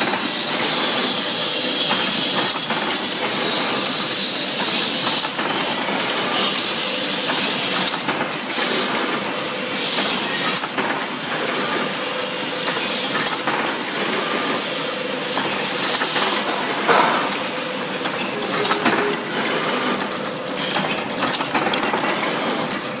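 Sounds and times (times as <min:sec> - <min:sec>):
machine humming: 0:13.8 - 0:20.6
hissing clattering bursts: 0:14.6 - 0:20.4.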